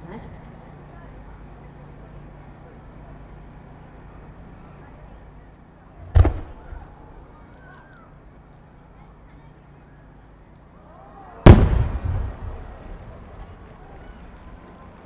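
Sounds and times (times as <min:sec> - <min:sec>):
fireworks booming: 0:06.0 - 0:07.3, 0:11.4 - 0:14.7.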